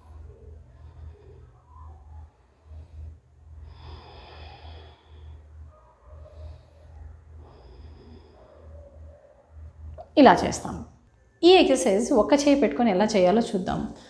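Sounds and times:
low pulsing hum: 0.0 - 14.0
deep breath through the nose: 2.6 - 8.9.

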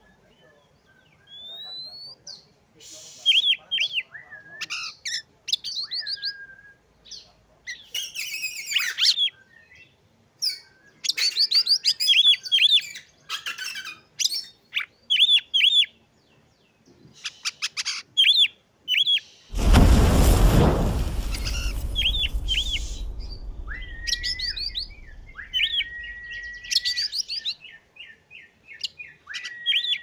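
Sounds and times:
magpie-robin singing: 1.0 - 2.1
loud rushing noise: 19.5 - 26.7.

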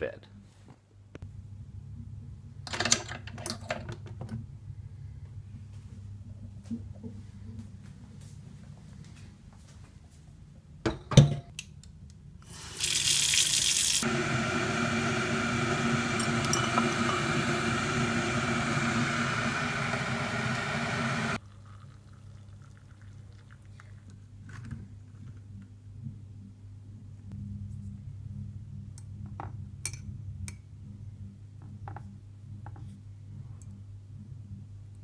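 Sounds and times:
water pouring from kettle into mug: 12.5 - 14.0, 21.3 - 24.1.

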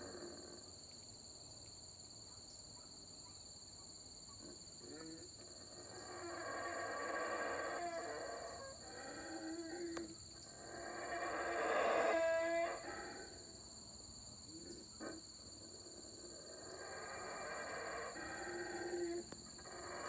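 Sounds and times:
howler monkeys roaring: 4.4 - 13.5, 14.5 - 20.0.

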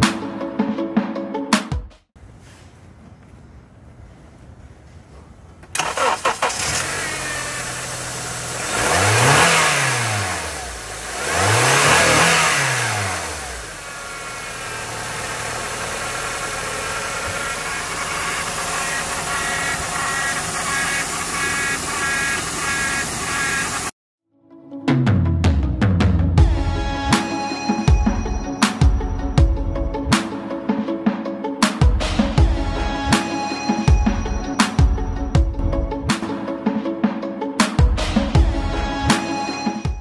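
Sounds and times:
car engine idling: 3.7 - 9.4, 10.1 - 12.2, 13.0 - 24.0
car engine cranking and starting: 5.5 - 24.0
car engine revving: 5.7 - 24.0.

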